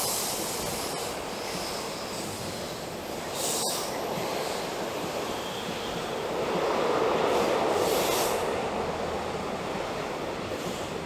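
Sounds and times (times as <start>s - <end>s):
high hiss bursts: 0.0s - 6.2s, 7.3s - 8.6s
train wheels rumbling on rail: 0.0s - 11.0s.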